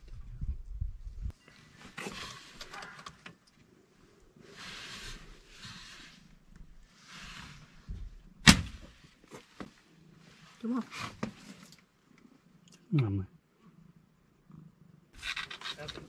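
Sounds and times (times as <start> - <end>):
gunshot: 8.4 - 8.8.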